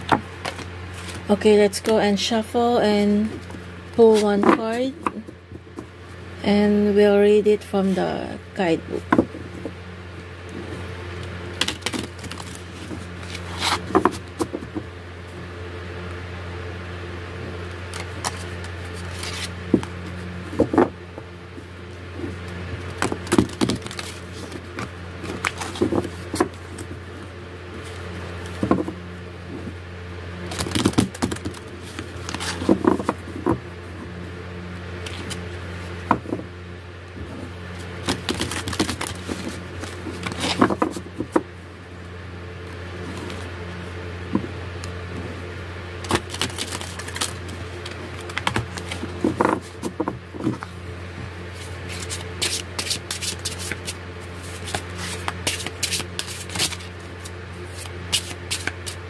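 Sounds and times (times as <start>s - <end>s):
steady low hum: 0.0s - 59.0s
cards being shuffled: 0.1s - 2.0s, 3.2s - 5.9s, 10.5s - 14.8s, 17.8s - 20.9s, 22.2s - 27.0s, 30.4s - 33.6s, 35.0s - 35.5s, 37.2s - 41.4s, 43.0s - 43.5s, 46.0s - 50.8s, 51.5s - 59.0s.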